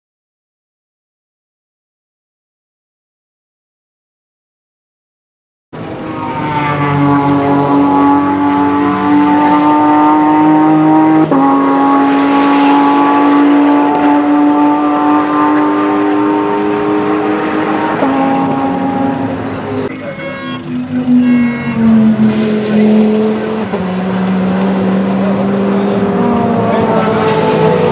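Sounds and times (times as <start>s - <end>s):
race car engine at high revs: 5.8s - 27.9s.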